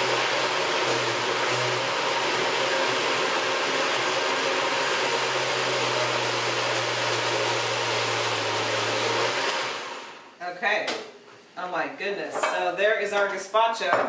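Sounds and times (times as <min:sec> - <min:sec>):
blender running: 0:00.0 - 0:10.3.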